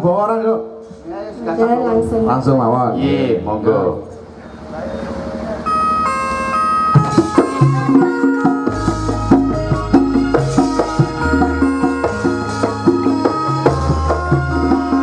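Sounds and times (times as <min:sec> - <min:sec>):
gamelan ensemble playing: 0:04.6 - 0:15.0
drum strokes: 0:05.4 - 0:15.0.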